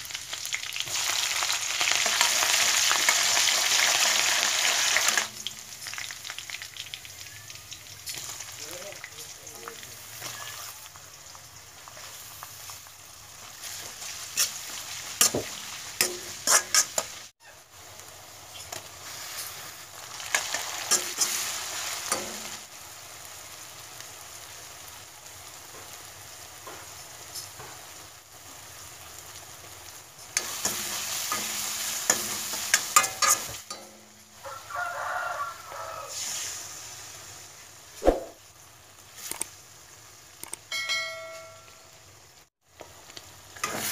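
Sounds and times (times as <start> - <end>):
vegetables sizzling in a wok: 0.0 - 43.9
spatula scraping a pan: 13.6 - 17.2, 20.3 - 22.3, 30.4 - 33.9.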